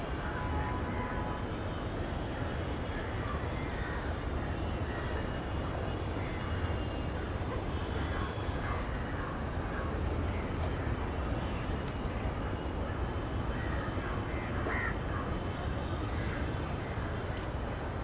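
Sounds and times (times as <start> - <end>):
crows cawing: 13.5 - 15.3, 16.1 - 16.5.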